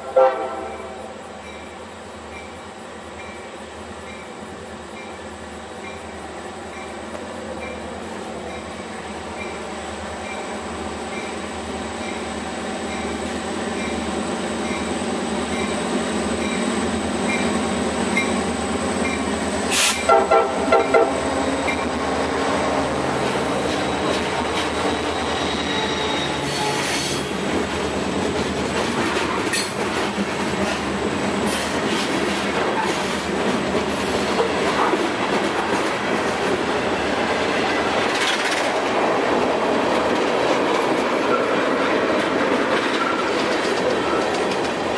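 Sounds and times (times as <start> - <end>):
train horn toots: 0.0 - 1.2, 19.8 - 21.3, 25.6 - 27.3
diesel locomotive engine drone: 0.0 - 44.9
wheel squeals: 24.8 - 27.3
freight cars rail clatter: 38.0 - 44.9.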